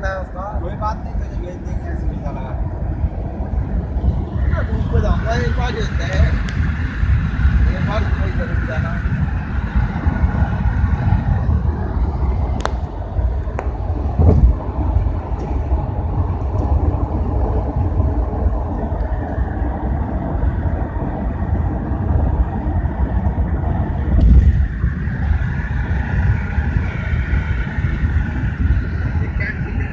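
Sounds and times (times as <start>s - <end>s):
car road and engine rumble: 0.0s - 29.9s.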